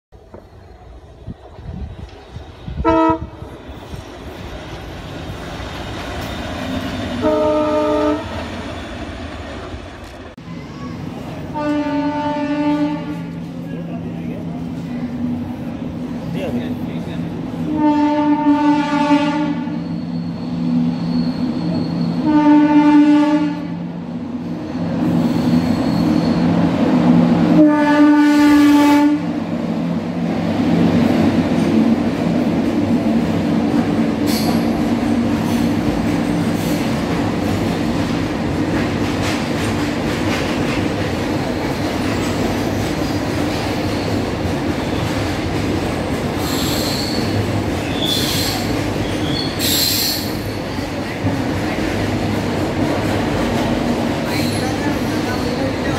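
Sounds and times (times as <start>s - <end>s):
locomotive horn blasts: 2.8s - 3.4s, 7.2s - 8.4s, 11.5s - 13.4s, 17.7s - 19.8s, 22.2s - 23.8s, 27.6s - 29.3s.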